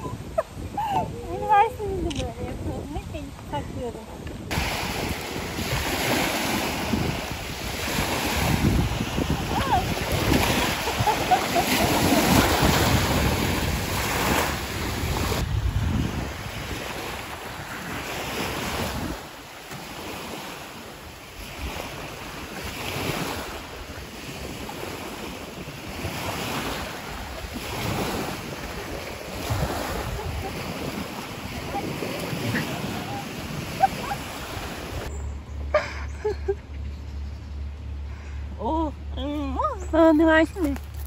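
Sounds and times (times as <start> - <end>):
sea waves washing ashore: 0.0 - 35.1
wind buffeting microphone: 0.0 - 35.1.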